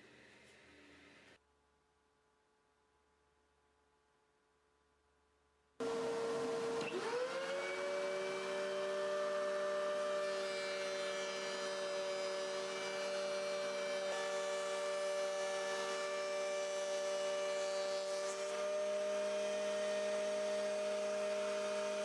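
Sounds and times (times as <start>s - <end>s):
thickness planer motor whine: 5.8s - 22.0s.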